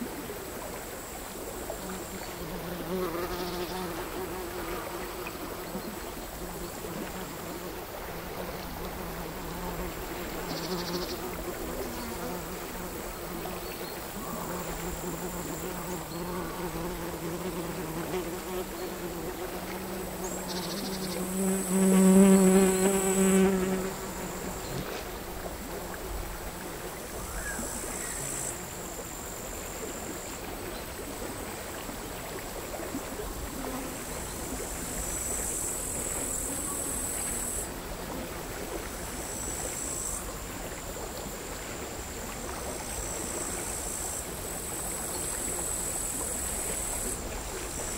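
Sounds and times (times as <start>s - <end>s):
flying insect buzzing: 1.8s - 29.0s
crickets trilling: 9.3s - 30.4s.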